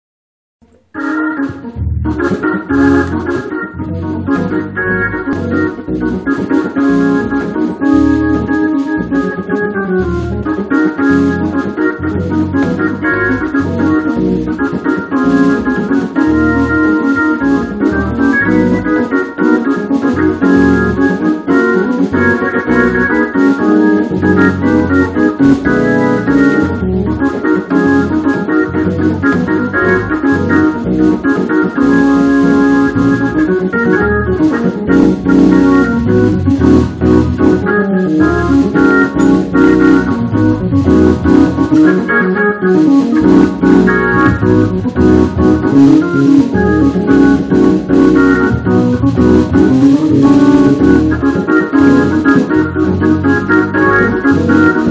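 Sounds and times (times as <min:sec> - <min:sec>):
organ playing gospel chords: 0:00.6 - 0:54.9
pulsing bass line: 0:01.5 - 0:14.6, 0:24.2 - 0:31.2, 0:31.9 - 0:41.8, 0:43.2 - 0:54.9.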